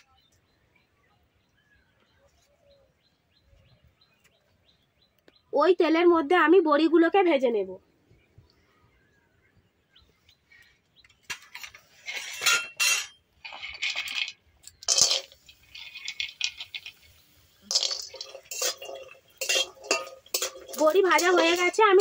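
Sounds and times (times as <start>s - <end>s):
dumplings clinking in metal pan: 11.3s - 22.0s.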